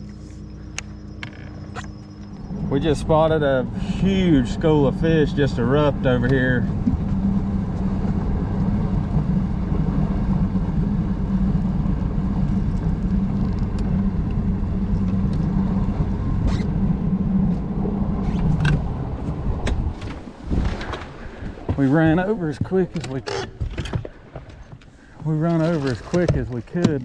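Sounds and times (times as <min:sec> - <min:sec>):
outboard motor running: 0:00.0 - 0:27.0.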